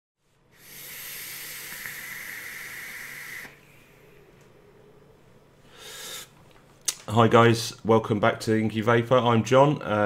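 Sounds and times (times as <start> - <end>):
air hissing through atomiser: 0.5 - 4.3
breathy exhale hiss: 0.5 - 4.3, 5.6 - 6.4.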